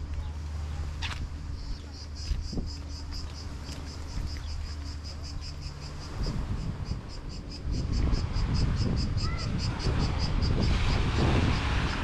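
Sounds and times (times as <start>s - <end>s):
insects chirping: 0.0s - 12.0s
steady low hum: 0.0s - 12.0s.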